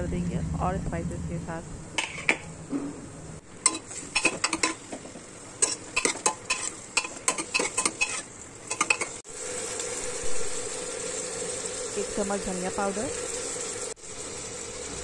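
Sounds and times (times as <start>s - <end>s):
metal spoon scraping pot: 2.0s - 2.4s, 3.6s - 4.8s, 5.6s - 9.2s
vegetables sizzling in oil: 3.4s - 15.0s.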